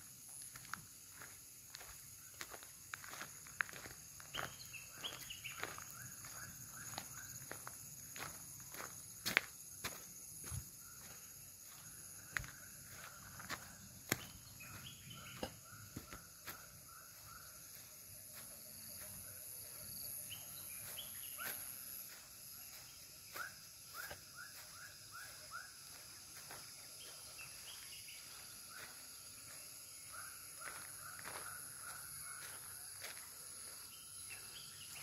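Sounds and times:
high-pitched insect drone: 0.0 - 35.0
bird chirping: 4.3 - 6.4, 12.9 - 16.2.

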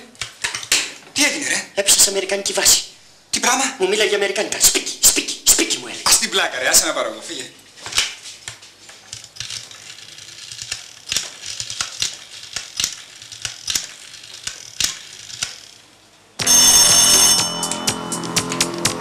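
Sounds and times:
loud ringing sound: 16.4 - 19.0
music: 16.4 - 19.0.

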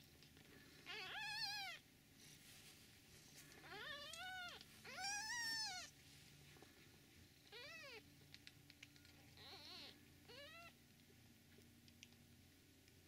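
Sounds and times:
kittens mewing: 3.6 - 5.9.

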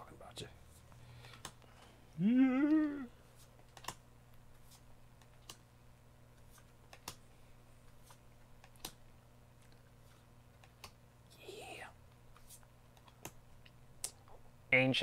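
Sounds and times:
trading cards flipped by hand: 3.3 - 5.7, 6.3 - 7.2, 7.8 - 9.0, 9.6 - 11.0, 12.3 - 13.4.

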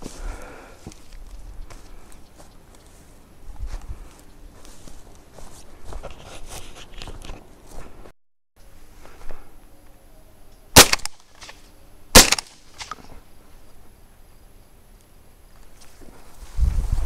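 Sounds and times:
shotgun shots: 10.8 - 11.6, 12.2 - 13.0.

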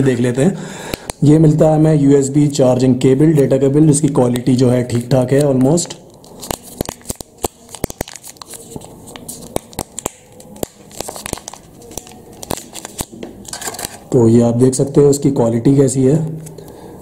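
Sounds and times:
wrapping crinkling: 4.9 - 14.2.

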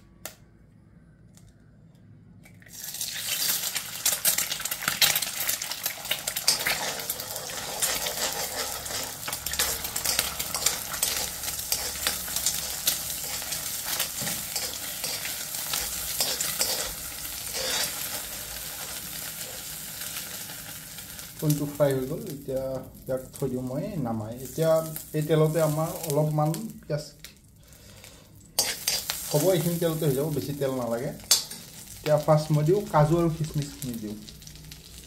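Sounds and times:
egg sizzling in oil: 2.6 - 35.0
spoon scraping and clicking on pan: 6.4 - 18.1, 28.6 - 29.2.

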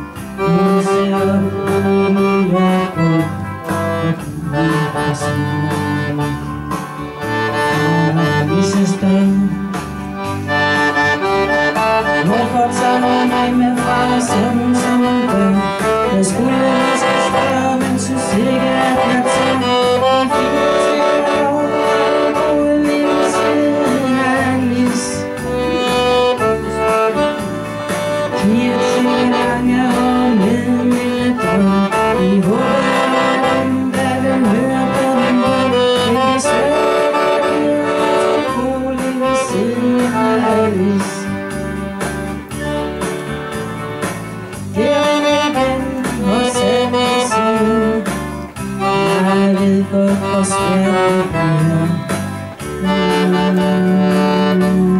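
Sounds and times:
accordion playing lively tune: 0.0 - 54.9
woman singing: 12.2 - 25.3, 28.3 - 41.3.

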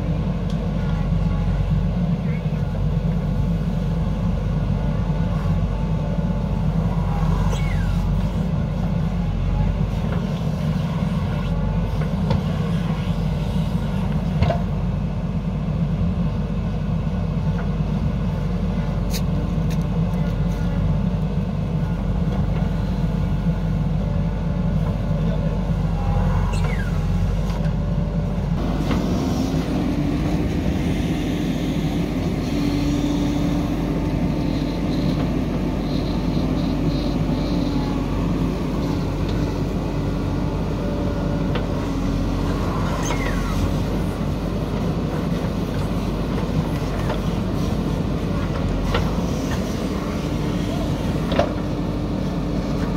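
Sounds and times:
diesel engine running under load: 0.0 - 52.9.

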